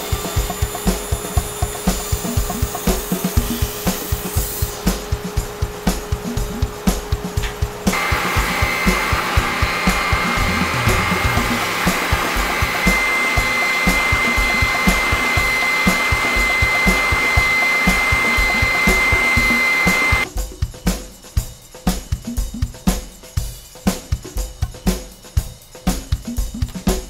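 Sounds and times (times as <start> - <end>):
spindle sander whining: 0.0 - 20.2.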